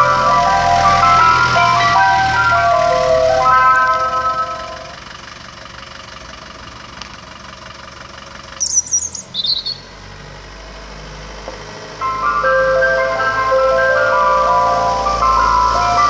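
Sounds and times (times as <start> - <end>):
ice cream van chime tune: 0.0 - 6.6, 11.9 - 16.0
van engine running: 0.0 - 16.0
bird chirping: 8.0 - 10.0.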